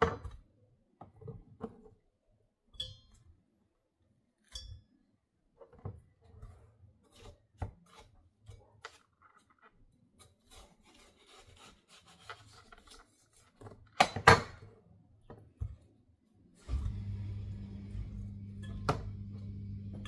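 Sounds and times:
knife cutting watermelon: 7.0 - 9.1, 10.2 - 13.7.

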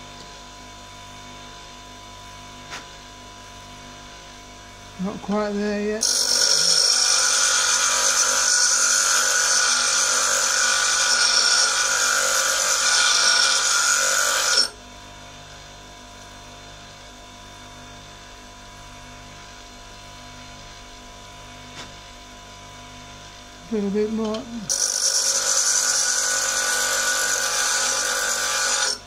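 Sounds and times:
grinder motor humming: 4.2 - 14.8, 22.3 - 29.0
tool grinding on grinder wheel: 5.0 - 14.8, 23.8 - 29.0.

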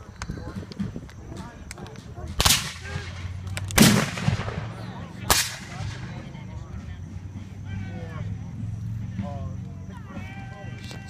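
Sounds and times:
rifle shots with ringing echo: 2.4 - 6.1.

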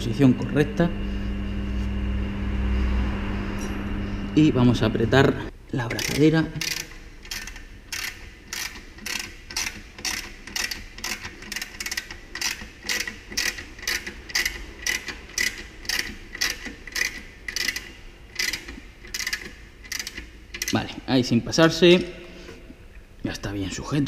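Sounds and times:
ratchet wrench clicking: 5.8 - 20.9.

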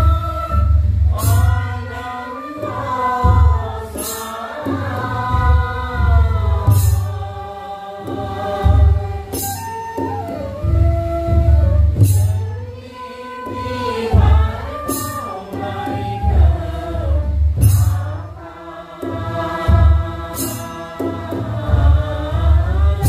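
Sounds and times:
group singing a prayer chant: 0.0 - 23.0
sharp cymbal-like clash: 3.9 - 5.1, 13.4 - 16.3, 20.2 - 21.9.

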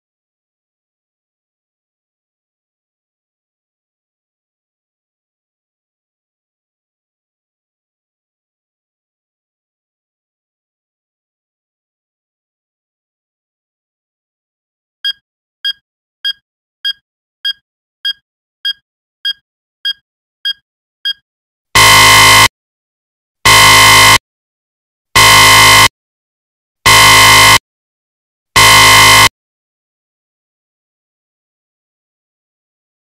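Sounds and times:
harsh buzzer blasts: 21.8 - 22.5, 23.4 - 24.2, 25.2 - 25.9, 26.8 - 27.6, 28.6 - 29.3
short electronic beeps: 21.8 - 22.5, 26.9 - 27.6, 28.6 - 29.3.

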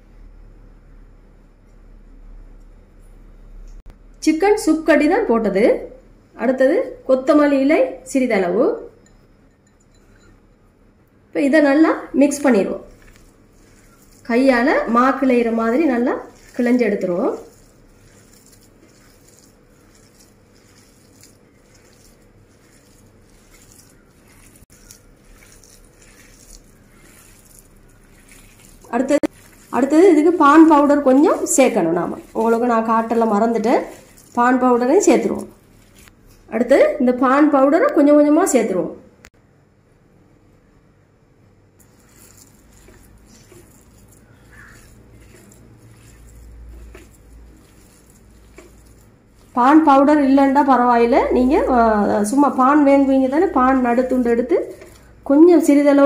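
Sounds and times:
low steady hum: 0.0 - 56.0
hand squishing food mixture: 11.4 - 38.8, 41.8 - 56.0.

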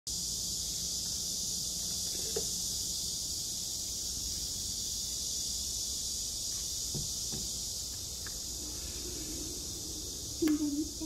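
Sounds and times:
high-pitched hiss: 0.1 - 11.0
faint low hum: 7.7 - 11.0.

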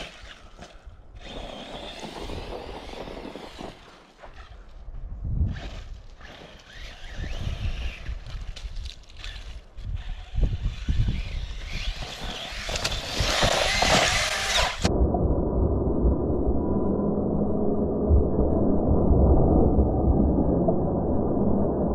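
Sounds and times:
low thumps from rough ground: 0.0 - 14.9
electric motor whining: 9.2 - 14.9.

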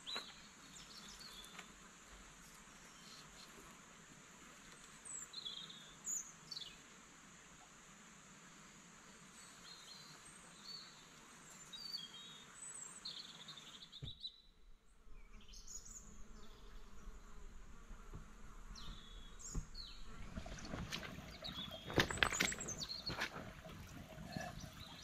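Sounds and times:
small birds chirping: 9.4 - 17.4, 18.7 - 25.0.

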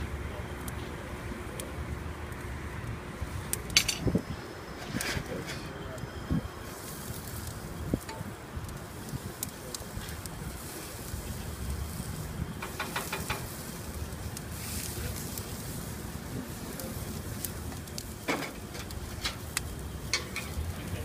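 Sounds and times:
steady low rumble: 0.0 - 12.8
vegetables sizzling on a grill: 0.0 - 21.0
metal tongs clicking on grate: 3.6 - 4.1, 17.9 - 20.6.

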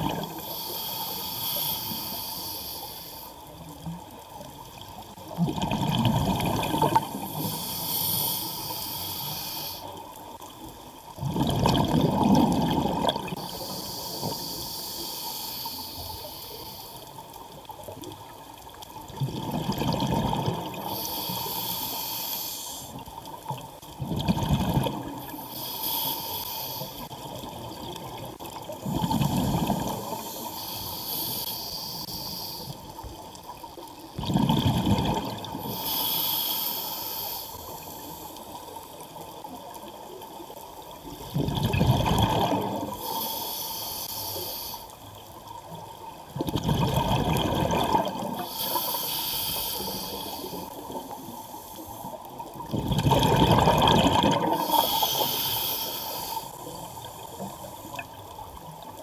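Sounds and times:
regulator hiss on inhale: 0.1 - 3.9, 7.0 - 10.5, 13.3 - 17.7, 20.7 - 23.5, 25.0 - 27.4, 28.6 - 33.9, 35.5 - 39.8, 42.5 - 45.8, 48.3 - 52.6, 54.2 - 58.1
exhaust bubbles rumbling: 52.7 - 54.6.

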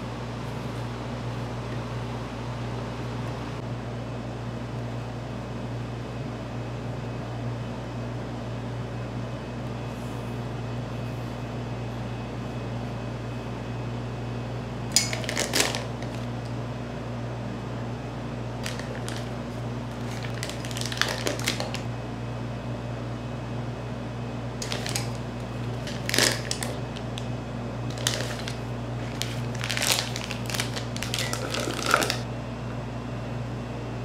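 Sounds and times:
steady low hum: 0.0 - 34.0
kitchen utensils scraping and clicking: 31.0 - 32.2.

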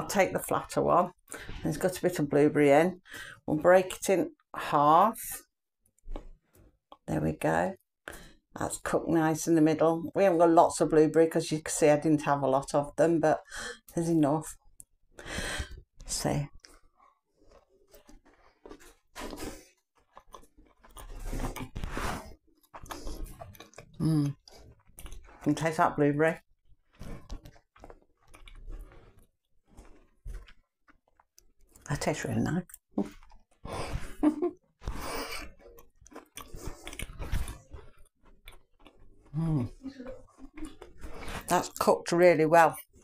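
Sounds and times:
person chewing: 16.6 - 25.5, 26.6 - 31.8, 32.7 - 41.5.

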